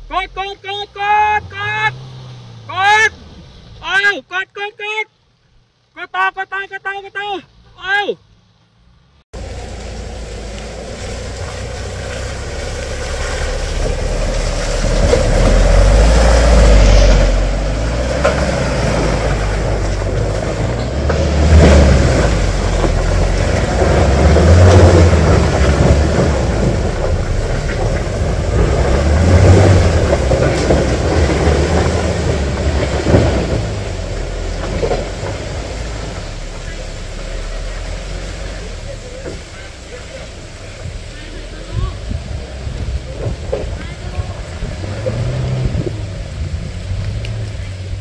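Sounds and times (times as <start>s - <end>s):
engine revving hard: 0.8s - 3.6s, 9.4s - 48.0s.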